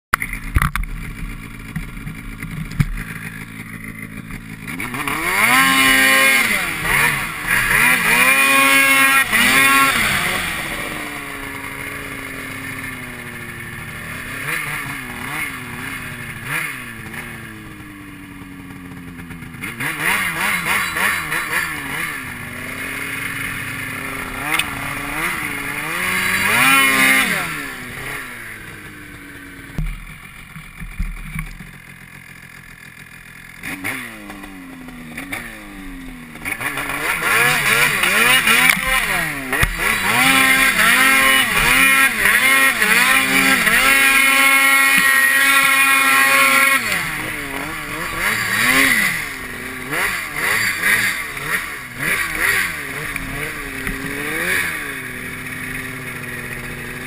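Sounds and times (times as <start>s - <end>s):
snowmobile engine revving: 0.2s - 30.9s, 31.8s - 57.0s.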